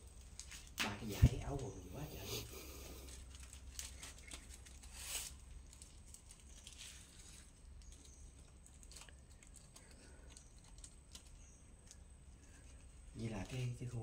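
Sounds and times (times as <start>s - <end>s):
low steady hum: 0.0s - 14.0s
rustles and light ticks: 0.0s - 14.0s.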